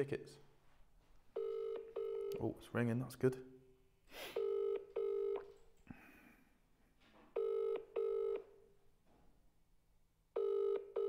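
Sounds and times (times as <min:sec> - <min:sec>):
double telephone ringback tone: 0:01.4 - 0:02.3, 0:04.4 - 0:05.6, 0:07.4 - 0:08.5, 0:10.4 - 0:11.0.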